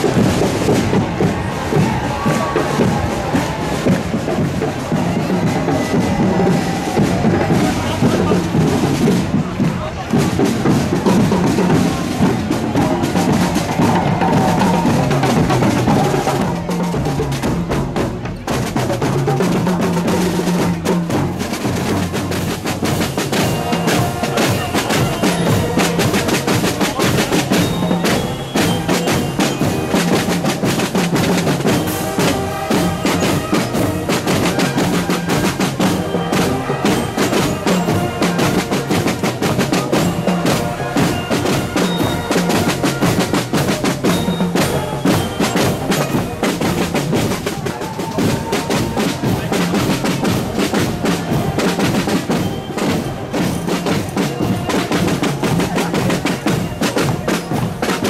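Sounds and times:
snare and bass drums beating: 0.0s - 58.0s
brass horns holding notes: 22.9s - 30.5s, 31.6s - 43.2s.

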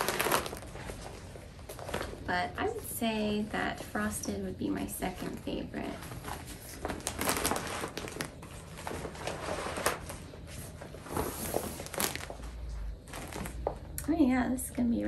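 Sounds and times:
vinyl sheet crinkling: 0.0s - 2.3s, 5.2s - 13.8s.

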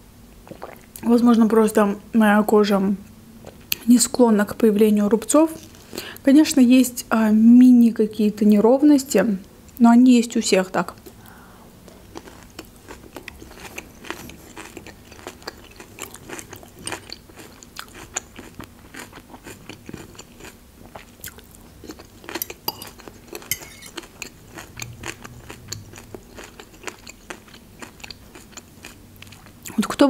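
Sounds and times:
chewing crunchy salad: 5.5s - 6.0s, 11.8s - 30.0s.

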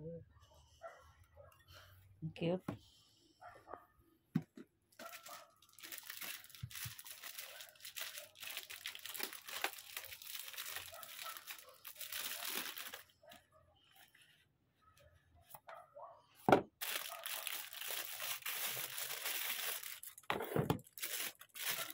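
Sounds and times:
plastic bag crinkling: 5.0s - 13.1s, 16.8s - 21.9s.

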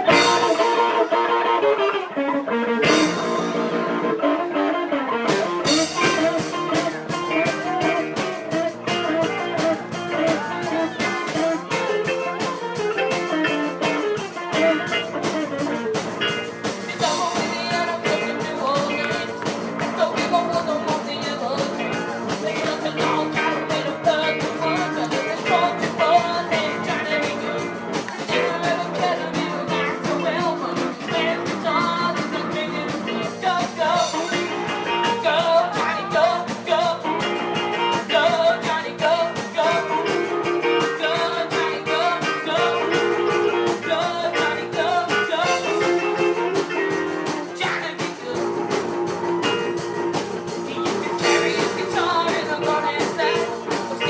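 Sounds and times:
drums: 0.0s - 54.0s
person singing: 0.0s - 54.0s
rock band playing: 0.0s - 54.0s.

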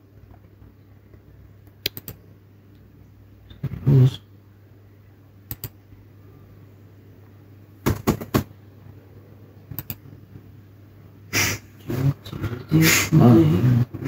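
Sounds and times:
faint low room hum: 0.0s - 14.0s
sharp clicks: 1.6s - 2.2s, 5.5s - 5.8s, 9.7s - 10.0s.

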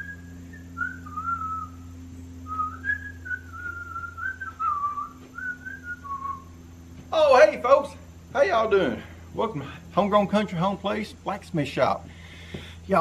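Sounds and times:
man whistling a tune: 0.0s - 1.8s, 2.4s - 6.5s
faint low hum: 0.0s - 13.0s.

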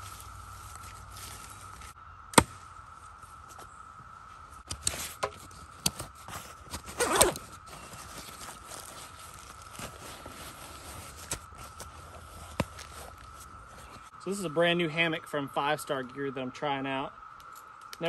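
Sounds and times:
faint steady tone: 0.0s - 18.0s
backpack fabric rustling: 4.8s - 14.1s
zipper being worked: 6.3s - 9.0s.

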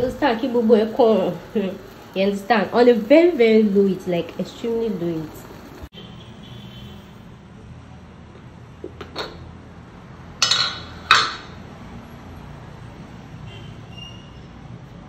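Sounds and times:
metallic lid clanks: 8.9s - 9.5s, 10.4s - 11.6s.

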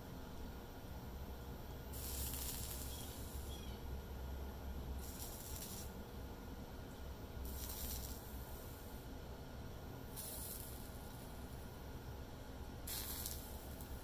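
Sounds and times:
low steady rumble: 0.0s - 14.0s
flux sizzling in hissing bursts: 1.9s - 3.6s, 5.0s - 6.0s, 7.4s - 9.0s, 10.1s - 11.4s, 12.8s - 14.0s.

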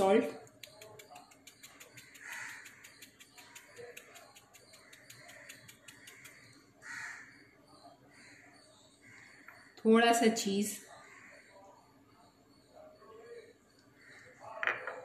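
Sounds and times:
fast faint ticking: 0.5s - 6.5s
faint bird calls: 0.6s - 9.8s.

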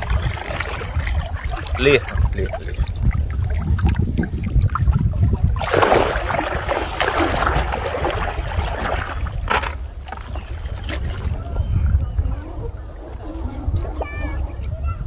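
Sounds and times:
low rumble: 0.0s - 10.1s
water splashing around wading legs: 0.0s - 11.6s.

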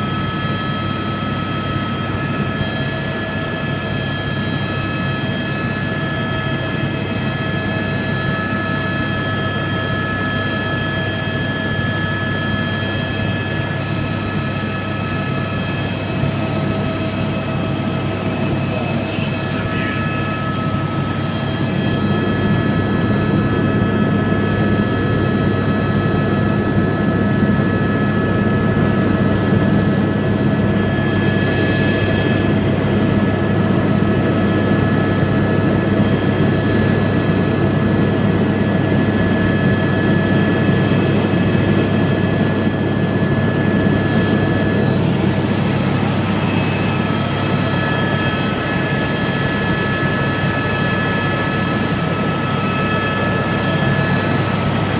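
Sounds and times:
helicopter rotor and engine noise: 0.0s - 54.9s
high whine: 13.9s - 36.2s.

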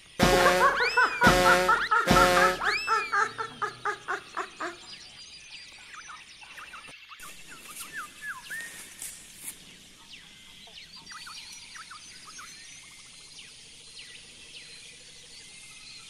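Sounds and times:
rapid bird trill: 0.0s - 4.9s
birds chirping and calling: 0.8s - 9.2s.

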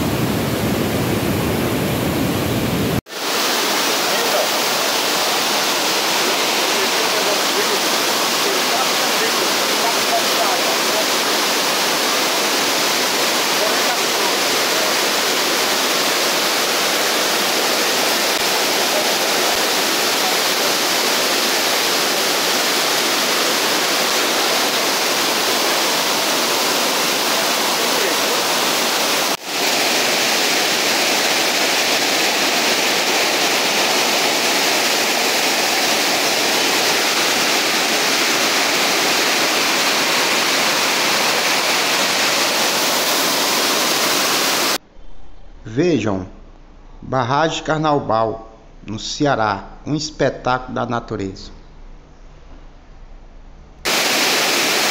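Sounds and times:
water rushing over spillway: 3.0s - 44.8s, 53.9s - 54.9s.

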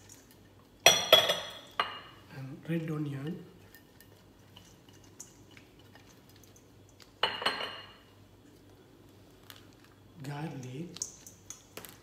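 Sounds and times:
glass dish clinking: 0.8s - 2.2s, 7.2s - 8.0s.

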